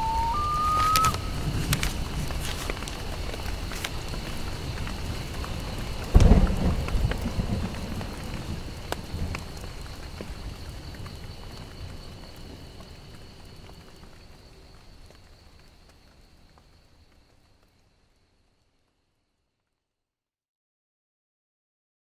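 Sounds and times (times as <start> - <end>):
thunderclap rumbling: 0.0 - 11.9
rain falling: 0.0 - 19.2.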